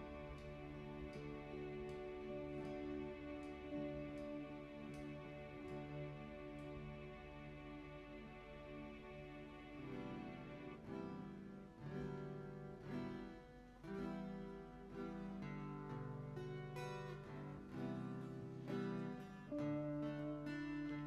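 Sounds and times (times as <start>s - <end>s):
acoustic guitar chords: 0.0s - 21.0s.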